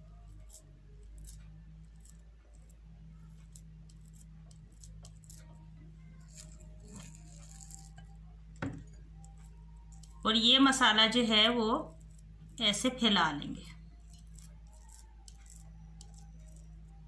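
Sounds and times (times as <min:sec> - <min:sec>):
steady low hum: 0:00.0 - 0:17.0
spatula clicks and scrapes: 0:00.3 - 0:08.2, 0:08.9 - 0:10.2, 0:11.9 - 0:12.3, 0:13.7 - 0:17.0.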